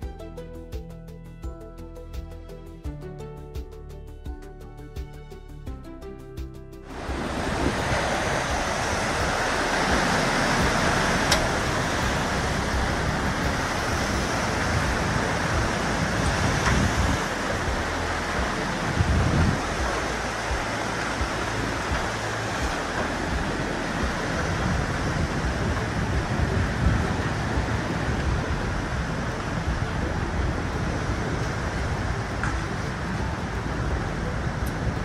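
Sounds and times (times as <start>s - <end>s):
churning seawater rushing: 6.9s - 35.0s.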